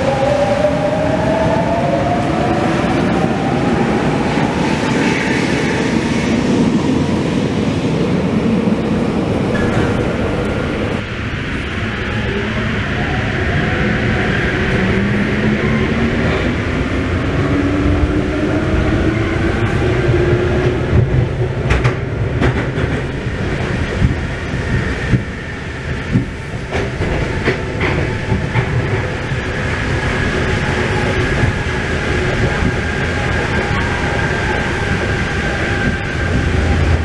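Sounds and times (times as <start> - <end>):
train rumble with motor whine: 9.0 - 37.0.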